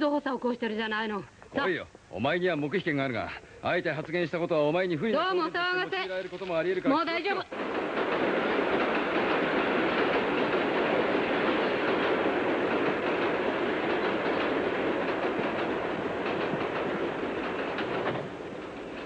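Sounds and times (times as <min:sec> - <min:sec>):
faint clattering: 0:05.1 - 0:19.0
steady rushing noise: 0:07.5 - 0:19.0.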